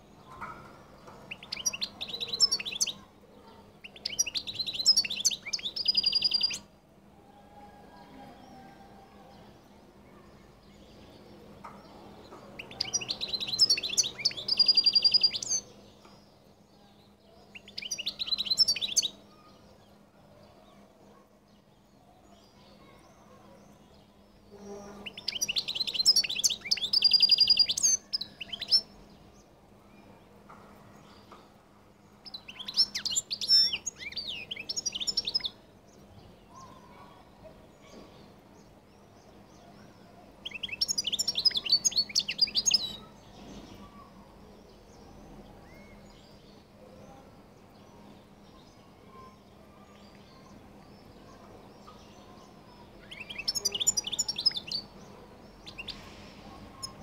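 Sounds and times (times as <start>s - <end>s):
goldfinch twittering song: 1.3s - 3.0s, 3.8s - 6.7s, 12.6s - 15.7s, 25.0s - 29.0s.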